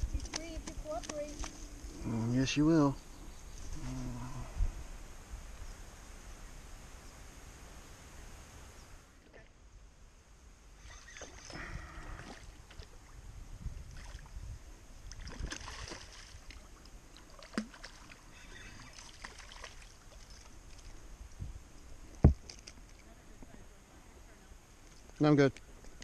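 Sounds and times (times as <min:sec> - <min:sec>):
fish splashing in water: 0:15.1 - 0:18.2, 0:18.8 - 0:20.9.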